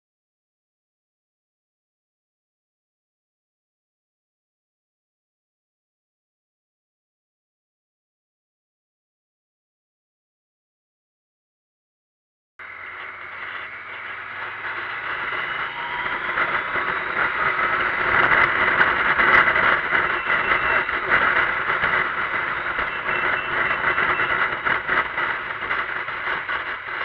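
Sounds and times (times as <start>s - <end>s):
motorcycle engine running: 12.6s - 27.0s
wind rushing over camera: 12.7s - 27.0s.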